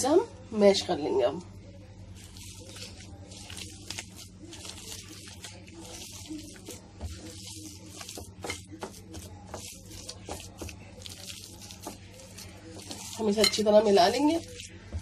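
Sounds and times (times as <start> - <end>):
hand squishing wet meat mixture: 1.8 - 15.0.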